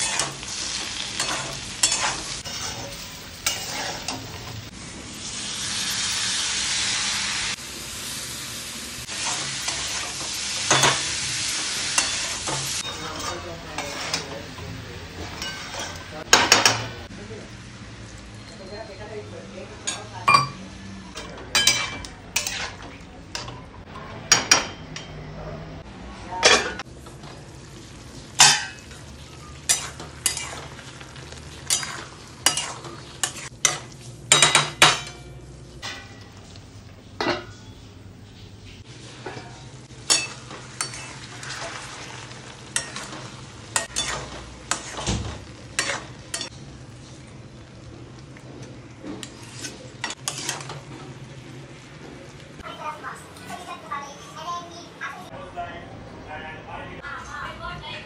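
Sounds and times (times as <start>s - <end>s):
metal spatula scraping a pan: 0.0s - 4.7s, 9.1s - 14.4s, 21.2s - 23.6s, 28.4s - 30.8s, 31.5s - 35.2s, 39.1s - 47.0s, 49.0s - 51.2s
curry sizzling: 0.0s - 55.4s.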